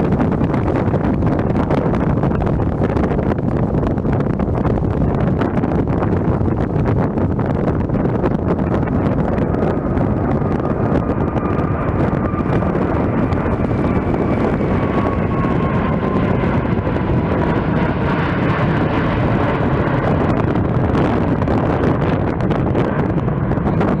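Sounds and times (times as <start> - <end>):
jet engines rumbling: 0.0 - 24.0
whine sliding down in pitch: 8.6 - 19.1.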